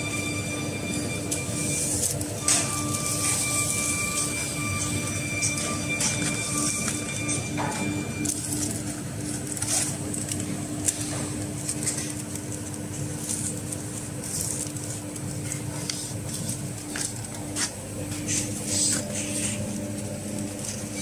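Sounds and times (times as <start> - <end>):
steady low hum: 0.0 - 21.0
plastic film rustling and crinkling: 1.3 - 5.1, 8.0 - 21.0.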